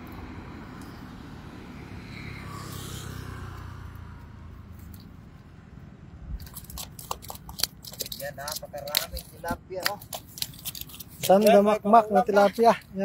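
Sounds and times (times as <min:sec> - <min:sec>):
low road rumble: 0:00.0 - 0:13.0
fish flopping on pavement: 0:06.4 - 0:12.7.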